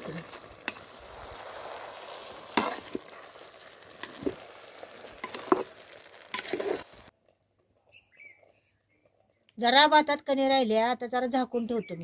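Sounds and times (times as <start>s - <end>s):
metal spatula scraping a pot: 0.0s - 3.3s, 5.2s - 7.1s.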